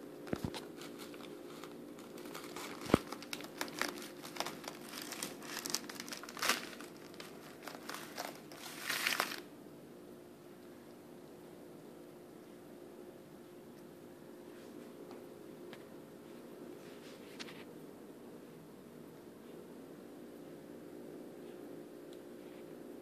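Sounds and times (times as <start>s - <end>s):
plastic bag crinkling: 0.2s - 9.5s.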